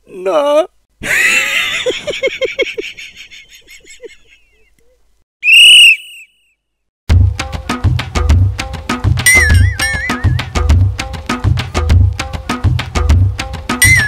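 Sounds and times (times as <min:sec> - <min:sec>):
rising and falling whistle tone: 0:05.4 - 0:06.6
music with a beat: 0:07.1 - 0:14.0.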